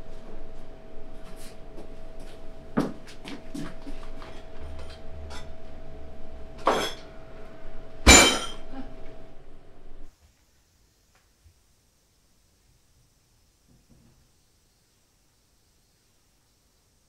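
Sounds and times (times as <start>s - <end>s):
faint steady hum: 0.0s - 17.0s
cups and dishes clinking: 6.6s - 7.1s, 8.1s - 8.8s.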